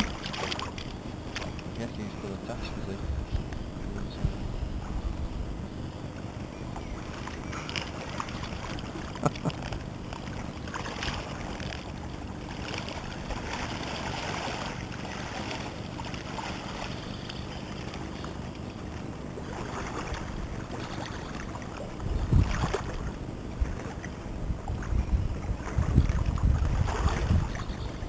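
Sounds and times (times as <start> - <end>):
splashing of wading person: 0.0 - 1.9, 7.0 - 18.3, 18.9 - 24.2
river water rippling over stones: 0.0 - 3.0, 6.2 - 28.0.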